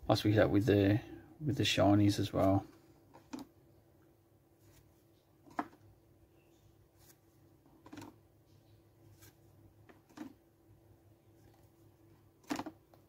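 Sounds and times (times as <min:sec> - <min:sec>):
faint steady hum: 0:00.0 - 0:13.0
cards clicking and rustling: 0:07.7 - 0:08.2, 0:12.4 - 0:13.0.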